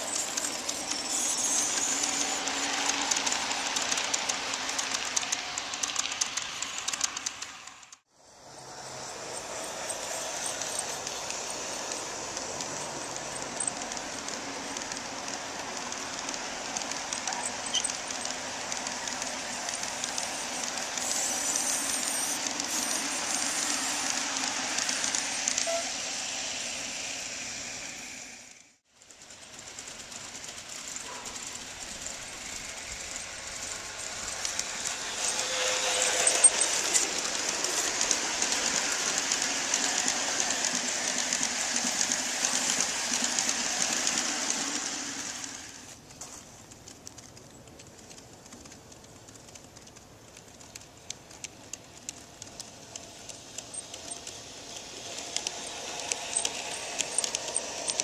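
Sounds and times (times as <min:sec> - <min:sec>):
model train wheels rolling on rails: 0:00.0 - 0:58.0
small clicks: 0:09.8 - 0:25.9, 0:45.9 - 0:58.0.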